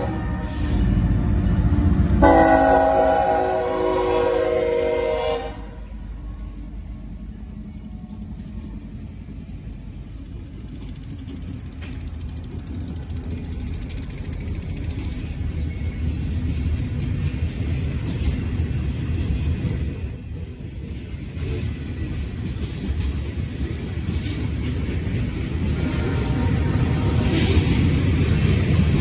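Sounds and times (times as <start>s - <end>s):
wheels rumbling on rail: 0.0s - 29.0s
freight cars rattling and clanking: 7.7s - 29.0s.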